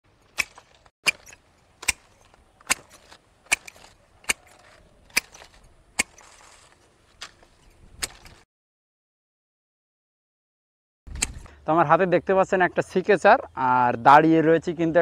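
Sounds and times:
pruning secateurs snipping: 0.2s - 8.4s.

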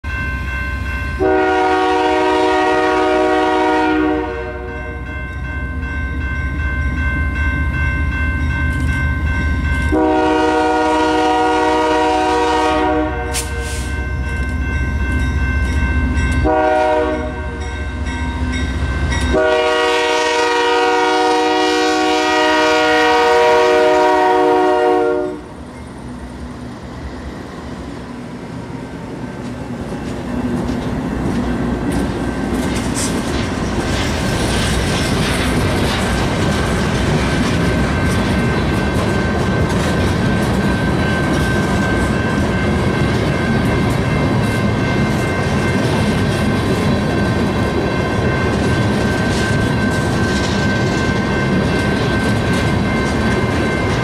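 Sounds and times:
locomotive air horn blasts: 1.2s - 4.9s, 9.9s - 13.9s, 16.4s - 17.7s, 19.3s - 25.5s
train wheels clacking over rails: 29.4s - 54.0s.

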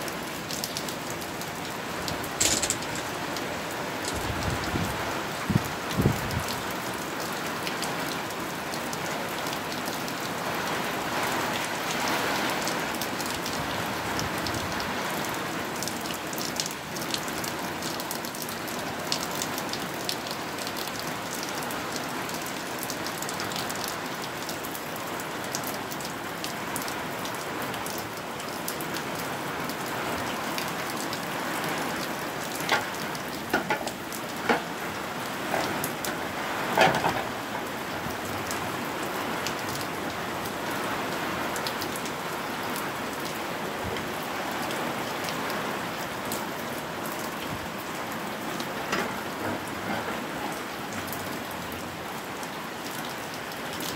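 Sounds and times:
heavy rain falling: 0.0s - 53.9s
sharp clicks of drops: 2.4s - 3.2s.

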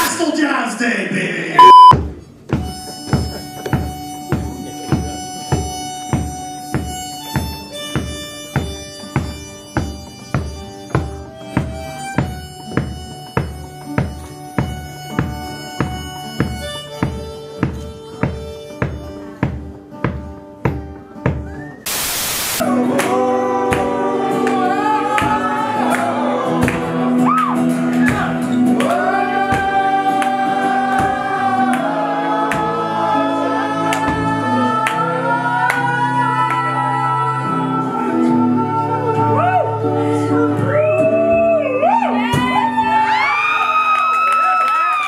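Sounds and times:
acoustic guitar strumming: 1.6s - 21.5s, 22.6s - 40.7s
man singing: 22.6s - 27.3s.

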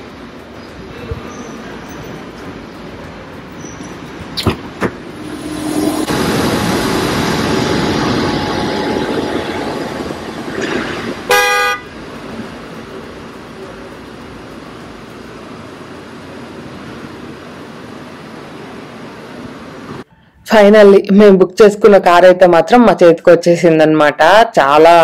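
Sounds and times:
convertible roof motor hum: 0.0s - 20.0s
car horn toot: 11.3s - 11.9s.

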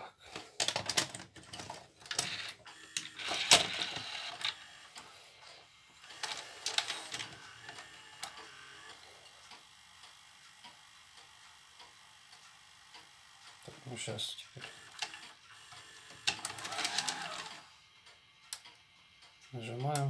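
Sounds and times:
cassette mechanism clicks and clatter: 0.6s - 4.6s.

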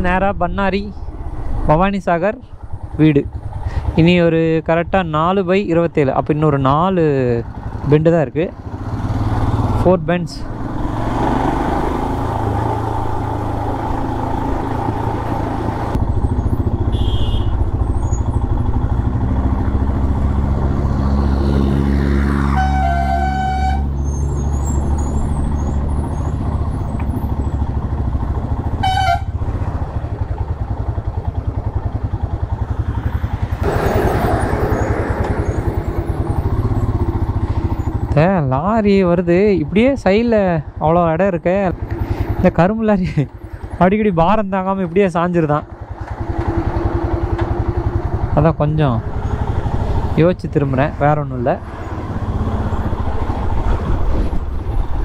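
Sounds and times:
motorcycle engine rumbling: 0.0s - 55.0s
vehicle horn honking: 16.8s - 17.7s, 22.5s - 24.0s, 28.7s - 29.4s.

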